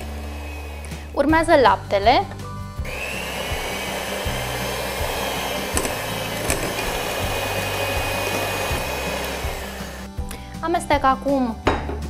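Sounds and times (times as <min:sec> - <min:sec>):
electric mixer whisking batter: 0:00.0 - 0:01.2, 0:02.8 - 0:10.1.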